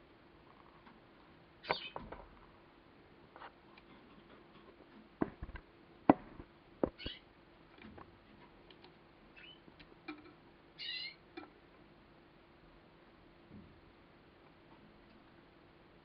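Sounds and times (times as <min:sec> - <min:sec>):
canary warbling chirps: 0:01.6 - 0:02.0, 0:07.0 - 0:07.3, 0:09.4 - 0:09.7, 0:10.8 - 0:11.2.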